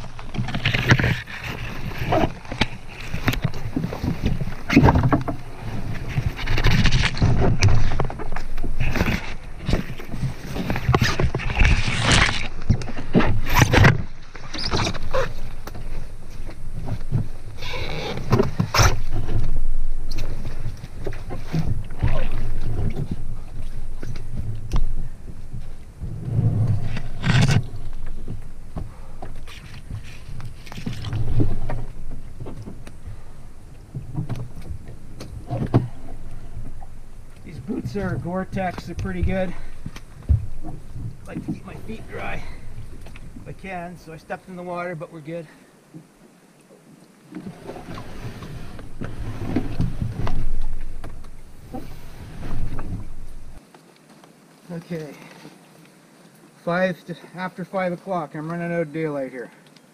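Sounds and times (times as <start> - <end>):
knocks and thumps on canoe hull: 0.0 - 11.8
branches scraping a rain jacket: 0.0 - 33.6, 34.4 - 44.3, 47.4 - 56.7
rain gear swishing: 0.0 - 44.6, 47.3 - 53.6
water moving: 0.0 - 56.8.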